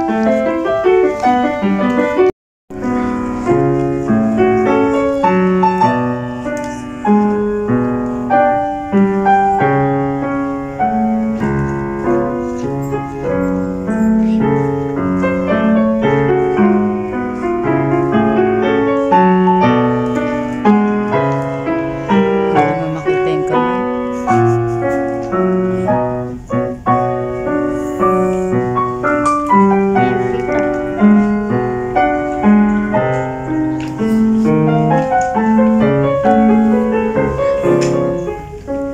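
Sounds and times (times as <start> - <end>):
solo piano: 0.0 - 38.9.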